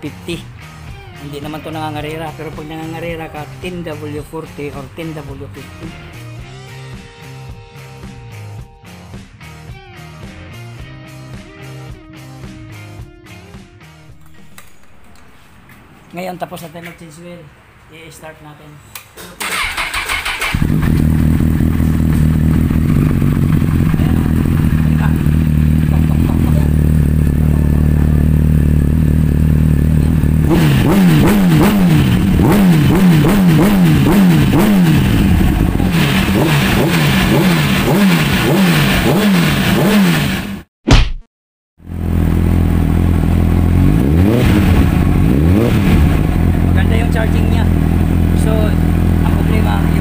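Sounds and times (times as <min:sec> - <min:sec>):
motorcycle engine starting: 0:14.1 - 0:15.3, 0:19.4 - 0:40.6, 0:41.9 - 0:50.0
engine revving: 0:19.4 - 0:40.7, 0:41.8 - 0:50.0
motorcycle engine idling: 0:20.2 - 0:30.8, 0:33.2 - 0:37.2, 0:44.7 - 0:50.0.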